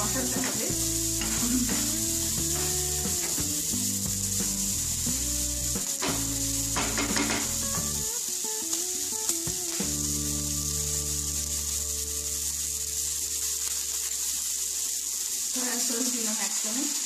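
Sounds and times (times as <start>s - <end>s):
background music: 0.0s - 13.0s
vegetables sizzling in oil: 0.0s - 17.0s.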